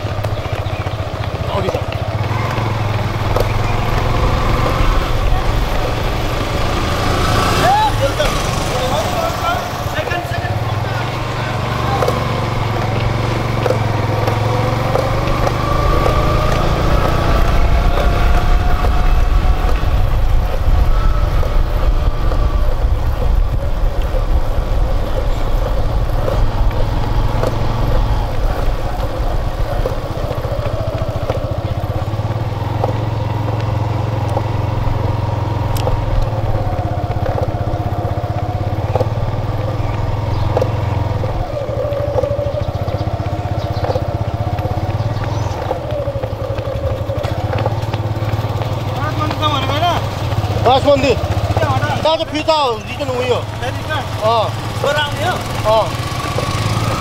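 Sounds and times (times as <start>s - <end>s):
motorcycle engine running: 0.0s - 57.0s
wind rumble on microphone: 12.3s - 49.1s.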